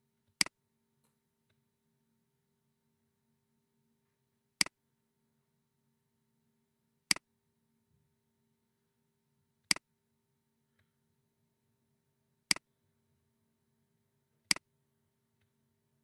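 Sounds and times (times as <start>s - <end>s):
computer mouse clicks: 14.5s - 14.7s.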